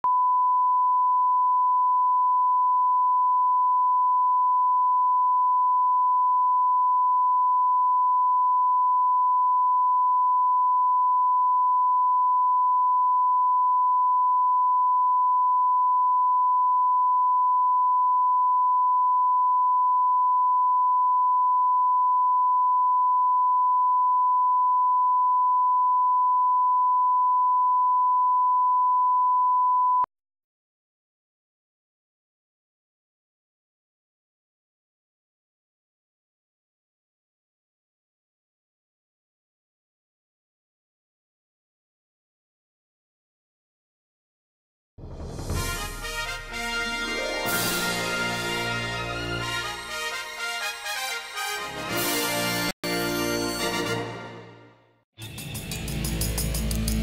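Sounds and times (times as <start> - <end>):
sine test tone: 0.0 - 30.1.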